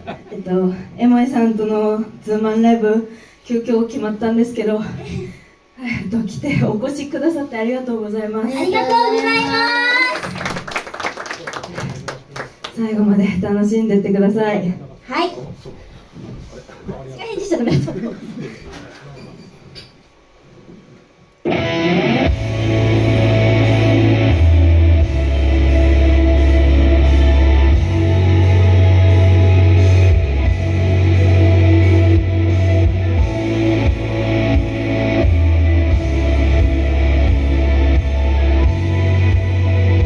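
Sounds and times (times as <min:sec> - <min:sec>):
distorted electric guitar: 0:21.4 - 0:40.0
deep bass line: 0:21.6 - 0:40.0
steady drum beat: 0:22.3 - 0:40.0.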